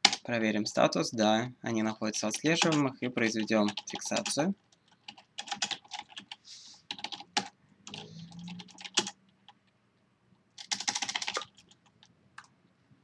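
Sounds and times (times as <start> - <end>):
computer keyboard typing: 0.0 - 0.3, 2.4 - 9.6, 10.6 - 12.5.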